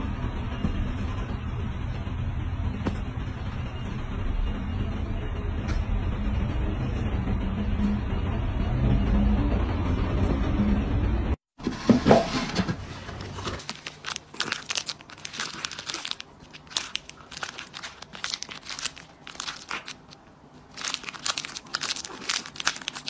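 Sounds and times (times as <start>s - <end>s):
plastic wrapper crinkling: 13.1s - 23.0s.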